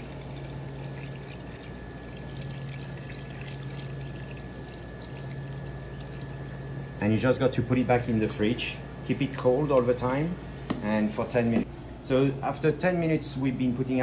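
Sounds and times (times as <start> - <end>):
liquid trickling into a metal pan: 0.0 - 6.7
low hum: 0.0 - 12.2.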